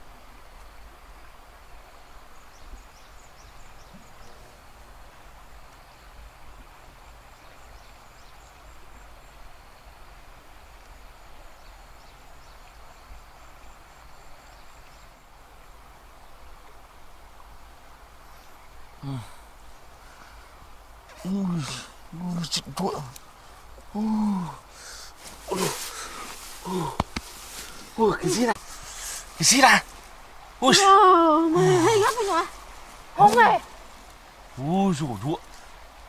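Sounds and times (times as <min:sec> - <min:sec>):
background hiss: 0:00.0 - 0:36.0.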